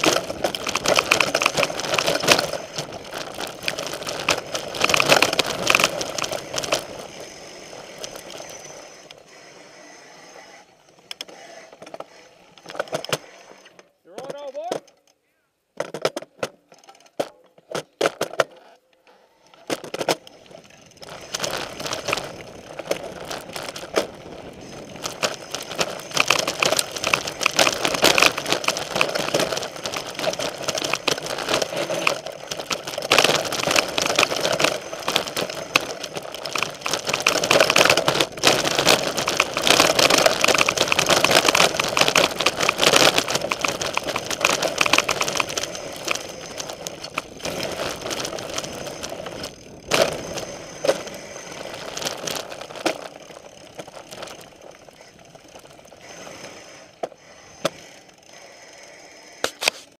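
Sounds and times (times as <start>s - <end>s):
tyres rolling over dirt and gravel: 0.0s - 14.7s, 15.8s - 59.9s
bike rattling over bumps: 0.0s - 14.8s, 19.4s - 59.9s
sharp clicks: 19.5s - 59.9s.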